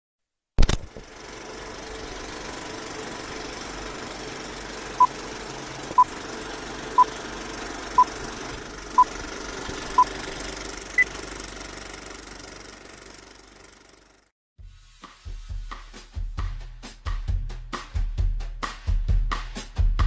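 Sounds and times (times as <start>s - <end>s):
film projector whirring: 0.6s - 14.3s.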